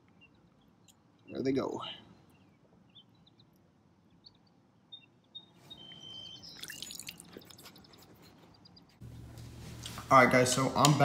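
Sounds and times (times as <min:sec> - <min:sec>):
high bird chirps: 0:02.2 - 0:09.0
river water lapping and trickling: 0:06.5 - 0:07.9.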